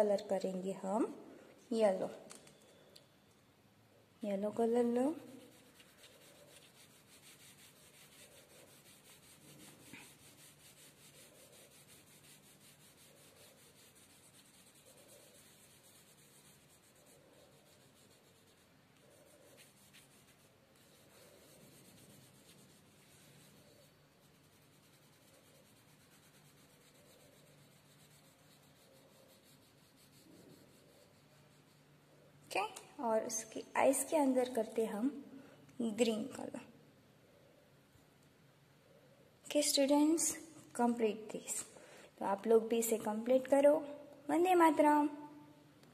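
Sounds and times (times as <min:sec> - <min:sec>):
pencil shading on paper: 0:05.0 - 0:31.9.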